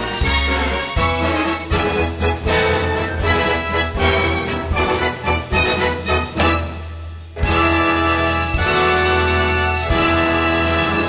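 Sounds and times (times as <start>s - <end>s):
orchestra playing overture: 0.0s - 11.0s
percussive hits: 4.0s - 7.8s.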